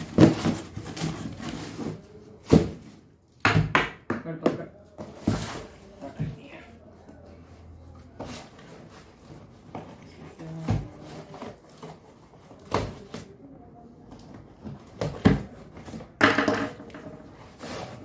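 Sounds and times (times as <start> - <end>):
cardboard rustling: 0.0 - 3.1, 4.9 - 7.2, 17.2 - 18.0
cardboard box knocks and bumps: 0.0 - 3.8.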